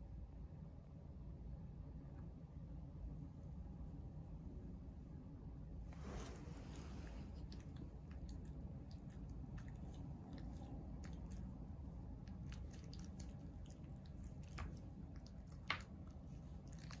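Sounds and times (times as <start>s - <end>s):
dog licking a hand: 6.1s - 17.0s.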